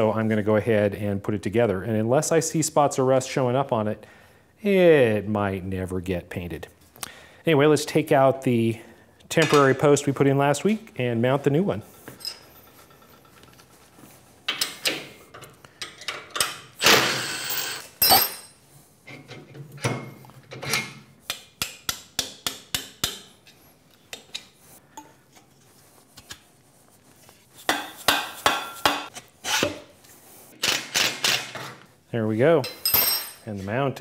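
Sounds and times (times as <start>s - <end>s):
metal tool clanks: 32.6s - 33.5s.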